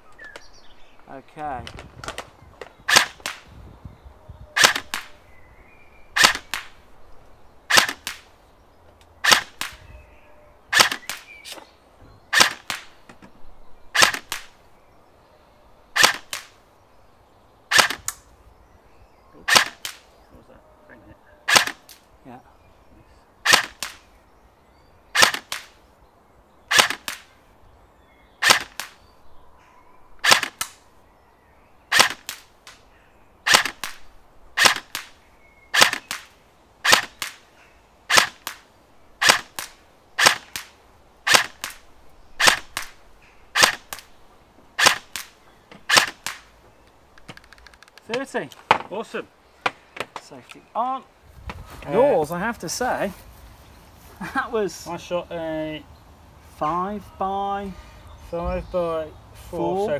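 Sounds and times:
airsoft rifle shots: 2.0 - 3.5, 4.6 - 5.1, 6.2 - 6.8, 7.7 - 8.3, 9.2 - 9.8, 10.7 - 11.6, 12.3 - 13.0, 13.9 - 14.6, 16.0 - 16.6, 17.7 - 18.2, 19.4 - 20.1, 21.4 - 22.0, 23.4 - 24.1, 25.1 - 25.8, 26.7 - 27.3, 28.4 - 29.0, 30.2 - 30.8, 31.9 - 32.5, 33.4 - 37.4, 38.1 - 44.1, 44.8 - 46.5.

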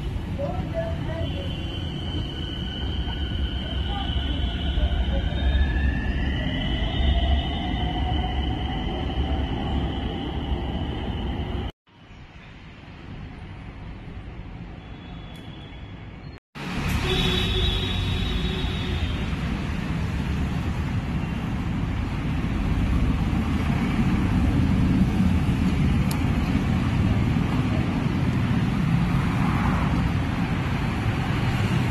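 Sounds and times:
passing vehicles hum: 16.6 - 31.9.

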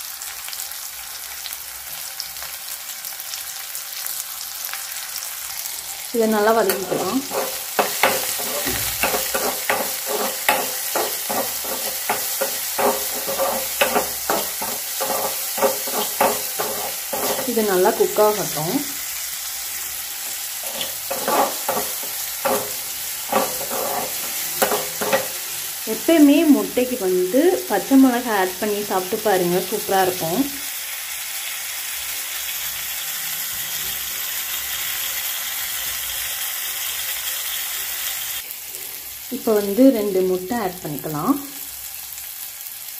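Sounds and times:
oil sizzling: 0.0 - 42.9
spoon scraping a pan: 6.5 - 18.7, 20.2 - 25.8.

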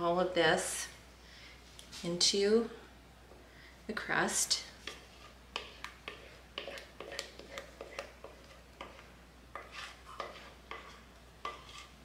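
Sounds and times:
wooden spoon scraping bowl: 4.8 - 12.0.

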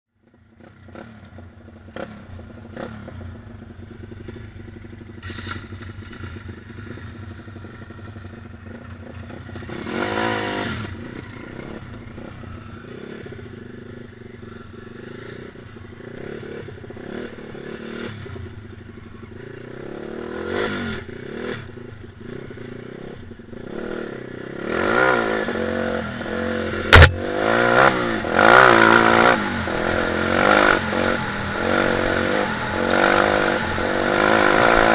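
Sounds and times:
motorbike engine revving: 0.6 - 34.9
sharp knock: 26.9 - 27.3.

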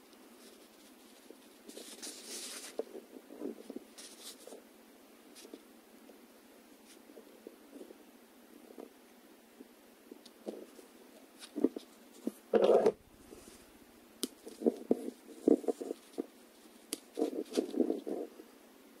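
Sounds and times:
fishing line rustling on fabric: 0.1 - 4.6, 10.4 - 18.4.

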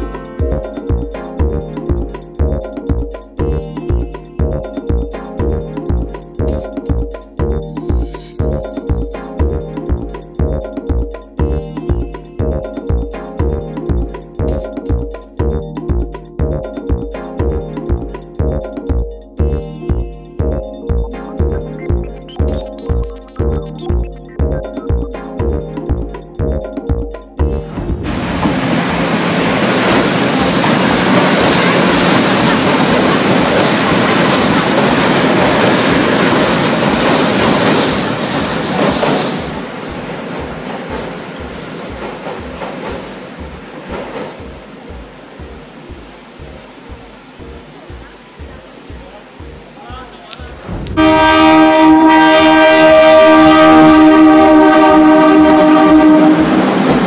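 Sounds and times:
train passing on rails: 27.6 - 57.0
train horn blast: 51.0 - 57.0.

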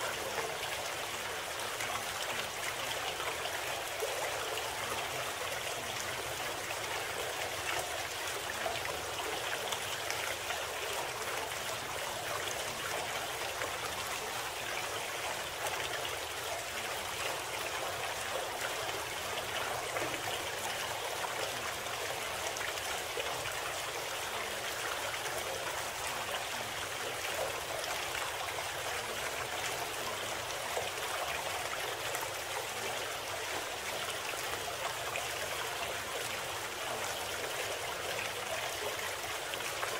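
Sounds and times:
stream flowing: 0.0 - 39.9.

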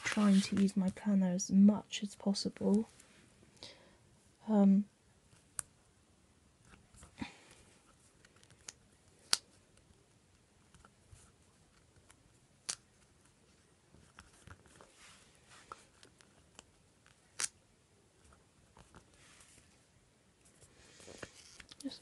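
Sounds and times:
paper rustling: 0.0 - 0.7.

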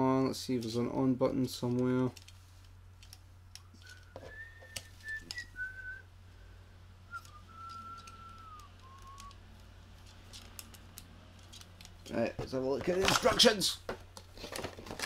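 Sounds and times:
soft whistling tune: 3.8 - 6.1, 7.1 - 9.4.

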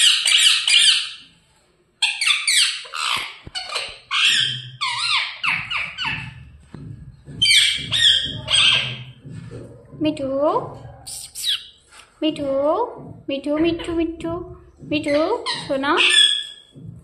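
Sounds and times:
parrot squawking: 0.0 - 1.3, 2.0 - 6.4, 7.4 - 9.2, 10.8 - 11.8, 15.0 - 16.8.

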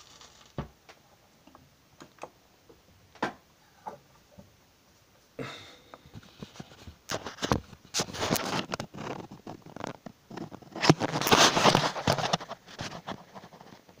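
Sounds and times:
microphone rubbing against clothing: 6.1 - 13.9.

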